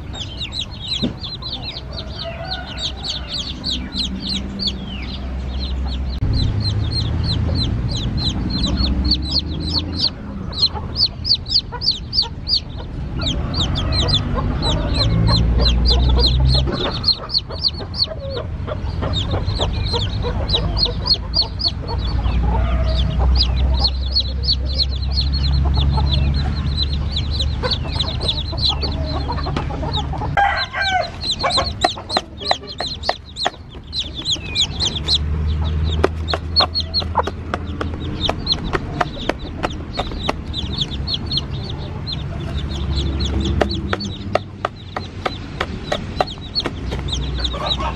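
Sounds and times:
chicks peeping: 0:00.0 - 0:47.9
low rumble: 0:03.0 - 0:30.4
hen calling: 0:05.8 - 0:47.9.

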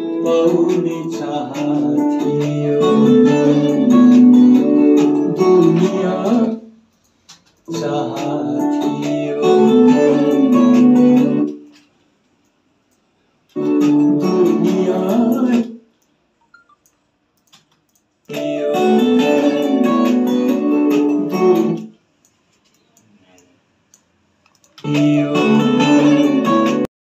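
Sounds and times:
guitar-led song: 0:00.0 - 0:06.6, 0:07.7 - 0:11.6, 0:13.6 - 0:15.7, 0:18.3 - 0:21.9, 0:24.8 - 0:26.9.

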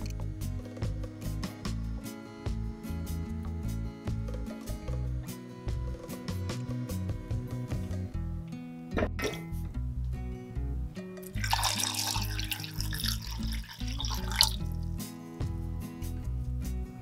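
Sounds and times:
background music: 0:00.0 - 0:17.0
water splashing into saucepan: 0:11.3 - 0:14.8.

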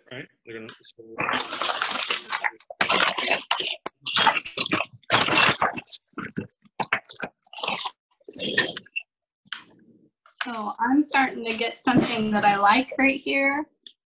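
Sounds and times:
glass pieces scraping on glass: 0:01.2 - 0:06.1.

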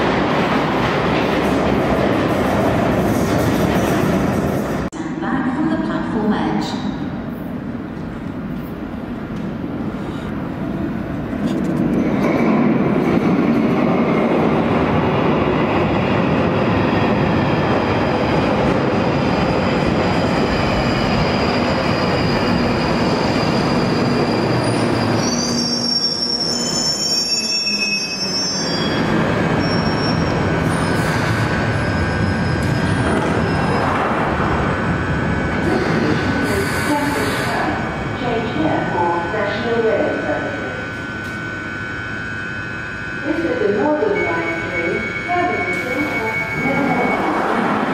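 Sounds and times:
train rolling rumble: 0:00.0 - 0:05.0, 0:07.5 - 0:26.6, 0:28.9 - 0:40.3
stopped train humming: 0:07.5 - 0:47.9
wheel and brake squeals: 0:20.4 - 0:33.9.

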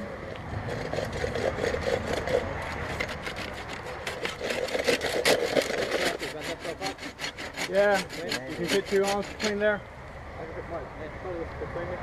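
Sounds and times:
hand saw cutting bamboo: 0:00.6 - 0:09.8.

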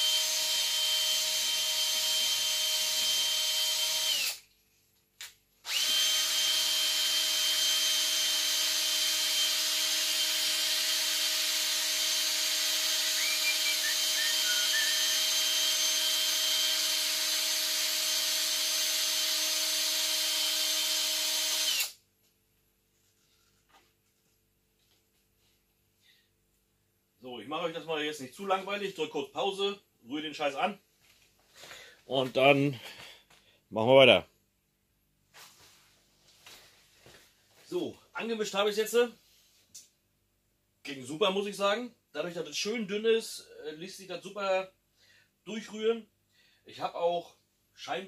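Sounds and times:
cordless drill whine: 0:00.0 - 0:04.4, 0:05.6 - 0:22.0
drill click: 0:00.1 - 0:04.4, 0:05.2 - 0:22.0.

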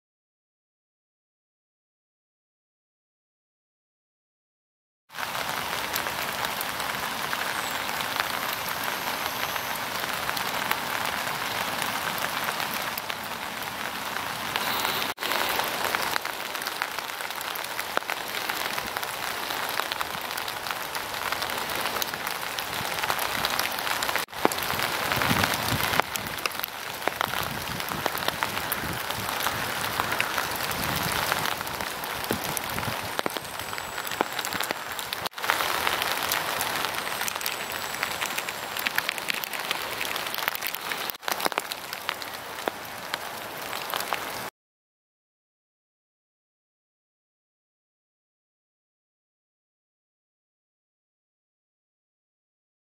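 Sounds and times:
rain falling: 0:05.1 - 0:44.5
raindrops ticking: 0:05.2 - 0:44.5.

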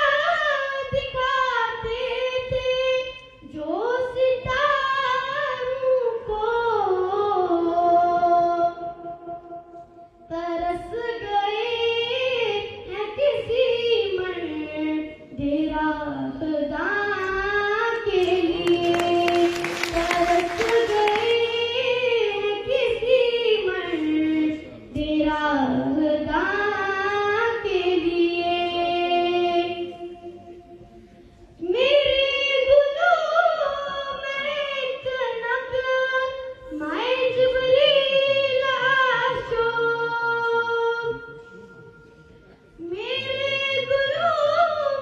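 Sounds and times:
woman singing over loudspeaker: 0:00.0 - 0:09.6, 0:10.3 - 0:30.6, 0:31.6 - 0:41.5, 0:42.8 - 0:45.0.

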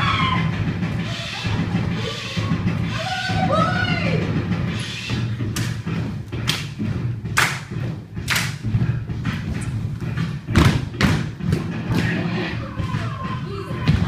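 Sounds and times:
feet stomping on wooden floor: 0:05.5 - 0:12.1.

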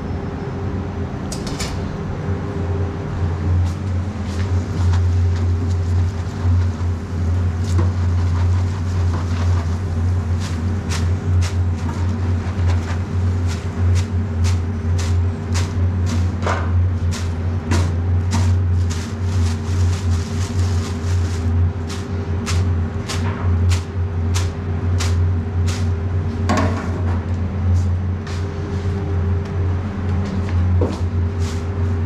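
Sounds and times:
kitchen machinery hum: 0:00.0 - 0:32.0.

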